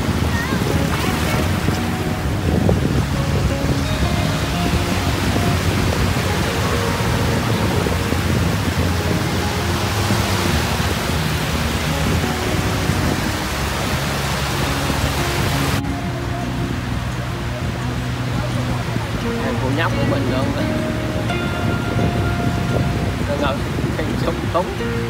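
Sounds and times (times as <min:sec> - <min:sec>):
sea surf rushing: 0:00.0 - 0:25.0
wind buffeting microphone: 0:00.0 - 0:25.0.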